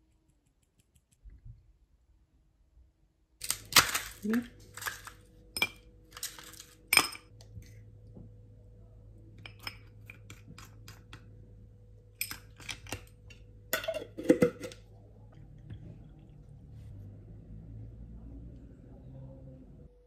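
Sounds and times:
metal spoon clinking against glass: 9.4 - 9.9.

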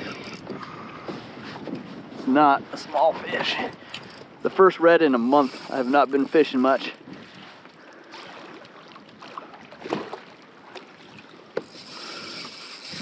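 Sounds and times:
wind noise on microphone: 0.0 - 4.5, 5.4 - 7.6, 11.6 - 13.0
water sloshing against kayak hull: 0.0 - 13.0
short knocks and splashes: 8.2 - 11.7.

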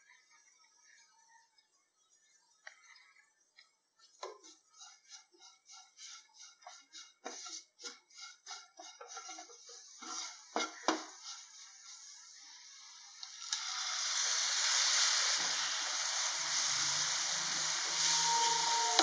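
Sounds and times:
spatula scraping frying pan: 4.3 - 13.0, 13.7 - 19.0
loud sizzling in hot oil: 4.4 - 19.0.

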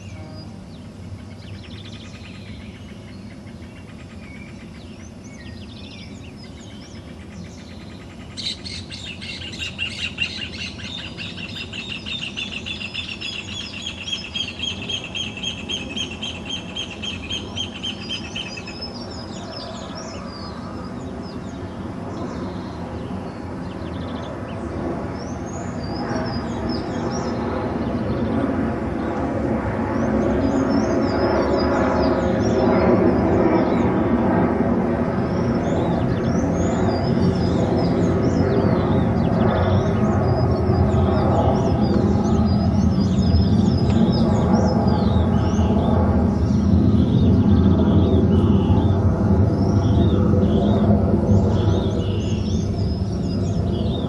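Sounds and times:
birds chirping and calling: 0.0 - 22.7, 35.6 - 54.0
bird rapid trill: 6.0 - 20.2.

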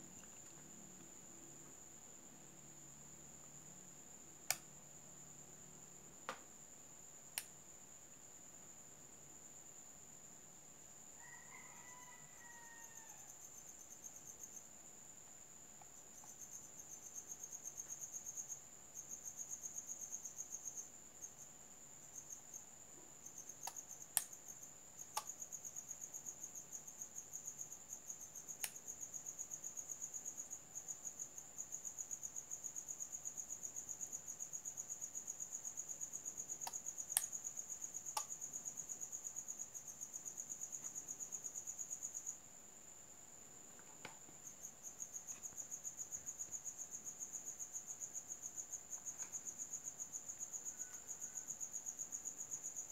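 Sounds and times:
cricket chirping: 0.0 - 52.9.

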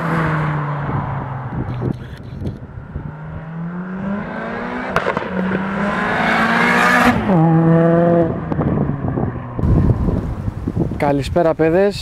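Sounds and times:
car engine accelerating hard: 0.0 - 10.5
exhaust crack on upshift: 4.9 - 5.8.

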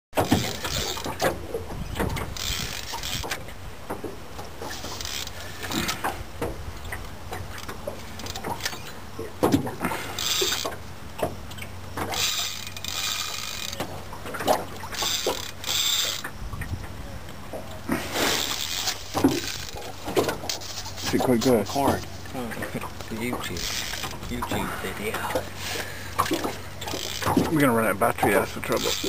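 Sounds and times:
fishing reel drag buzzing: 0.2 - 1.3, 2.2 - 3.5, 4.6 - 6.1, 7.6 - 9.0, 9.8 - 10.8, 11.5 - 14.0, 14.6 - 16.4, 18.0 - 22.3, 22.9 - 29.0.

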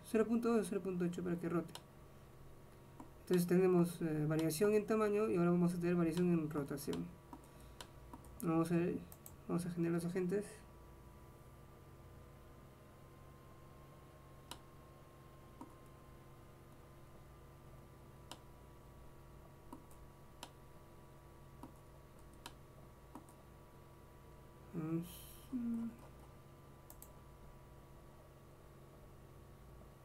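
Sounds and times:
faint electrical hum: 0.0 - 30.0
computer mouse clicks: 4.3 - 4.6, 9.1 - 9.4, 14.4 - 14.6, 15.6 - 15.8, 18.2 - 18.5, 19.7 - 20.6, 21.6 - 23.4, 26.0 - 27.2.

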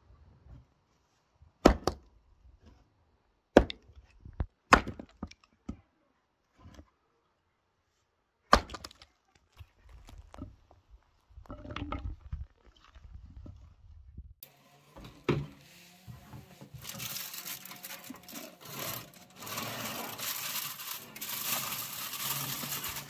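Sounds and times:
axe splitting firewood: 1.6 - 2.0, 4.7 - 5.4, 8.5 - 9.0, 14.9 - 23.0.

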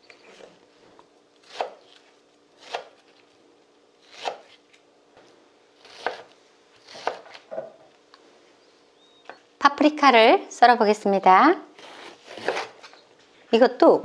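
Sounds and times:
knife cutting on wooden board: 1.4 - 2.0, 4.1 - 4.6, 5.8 - 7.4, 11.8 - 12.9.

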